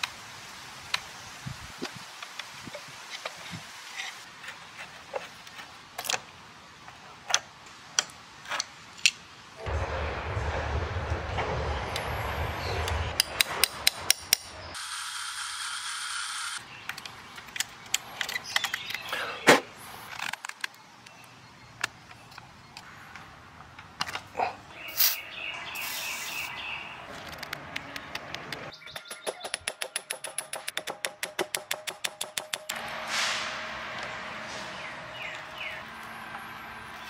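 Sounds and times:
power tool whine: 14.8s - 16.6s.

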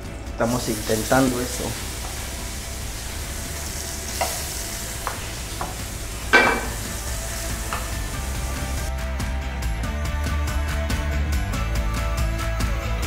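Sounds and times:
food sizzling in frying pan: 0.4s - 8.9s
metal utensils clinking: 4.1s - 8.2s
loud metallic clank: 6.3s - 6.9s.

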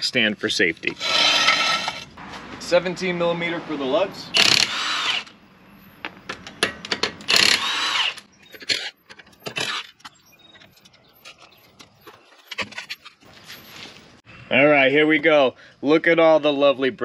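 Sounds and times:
impact wrench bursts: 1.0s - 2.0s, 4.3s - 5.4s, 7.0s - 10.0s.

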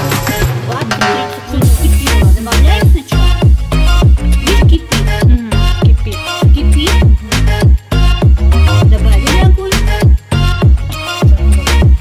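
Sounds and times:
music with steady beat: 0.0s - 12.0s
deep bass drum hits: 1.6s - 7.2s.

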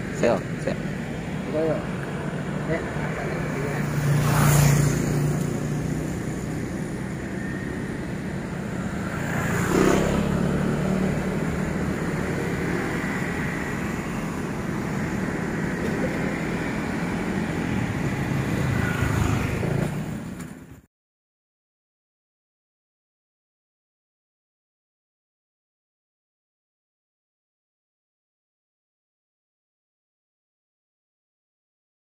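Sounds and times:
cars and motorcycles passing: 0.0s - 20.9s
low traffic engine hum: 0.0s - 20.9s.

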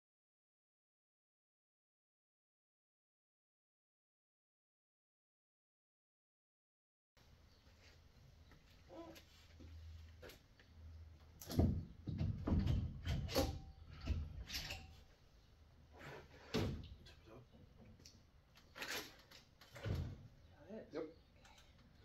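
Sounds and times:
metal clunks and knocks: 11.4s - 15.0s.

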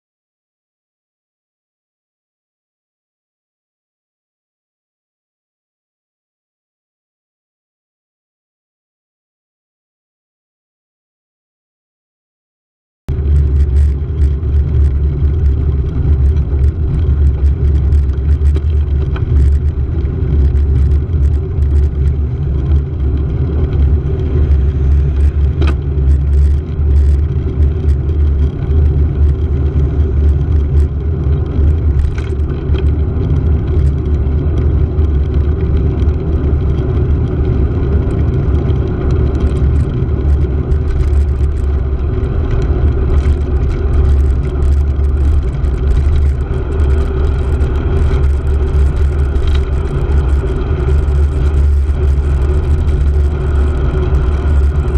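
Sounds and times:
road noise: 13.1s - 54.9s
small clicks and rattles: 13.1s - 54.9s.

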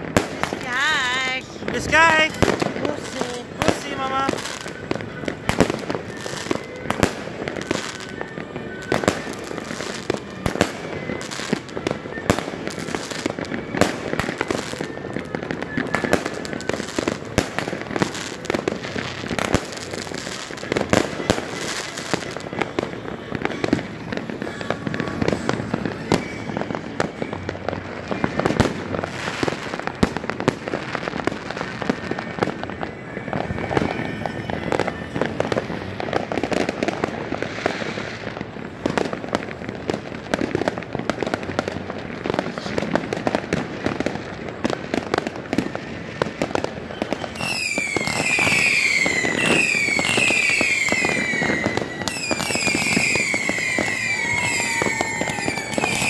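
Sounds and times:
fireworks bursting and banging: 0.0s - 56.0s.

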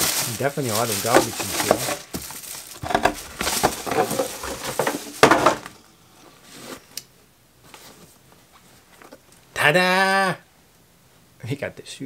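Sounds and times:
plastic and paper packing crinkling: 0.0s - 5.8s.

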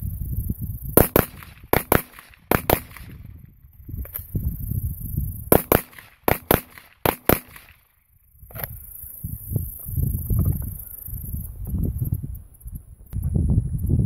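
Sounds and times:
rifle shots: 1.0s - 3.3s, 5.5s - 7.8s.

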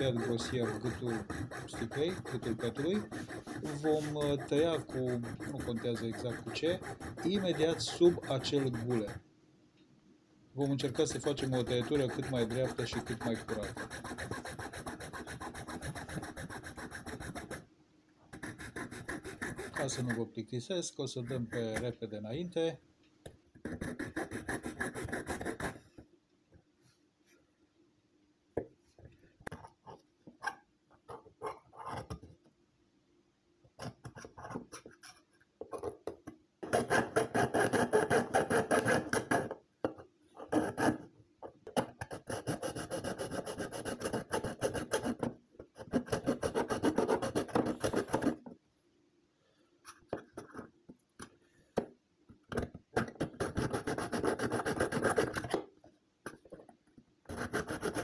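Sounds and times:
blade sawing plastic bottle: 36.6s - 39.4s.

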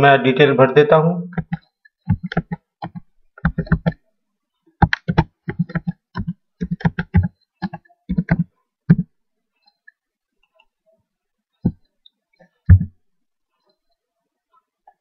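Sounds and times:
computer keyboard typing: 1.4s - 4.0s, 4.8s - 9.1s.

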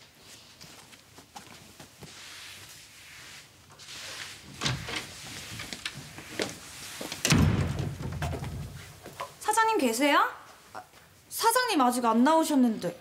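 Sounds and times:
door opening: 4.5s - 9.3s.

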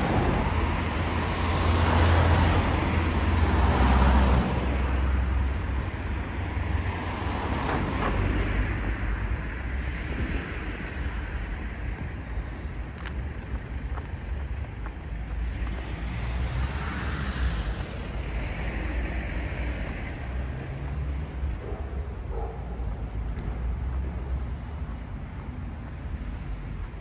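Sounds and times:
traffic noise: 0.0s - 27.0s
faint high squeaks and clicks: 13.4s - 15.0s, 23.2s - 25.0s.

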